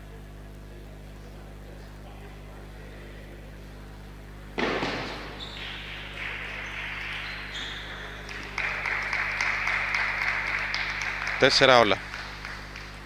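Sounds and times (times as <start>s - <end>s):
hand claps: 4.6s - 13.0s.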